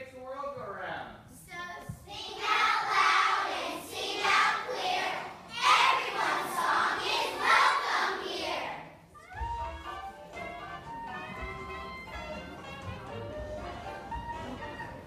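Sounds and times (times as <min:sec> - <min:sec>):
children's voices in unison: 0:02.2 - 0:09.0
accompanying music: 0:02.3 - 0:15.0.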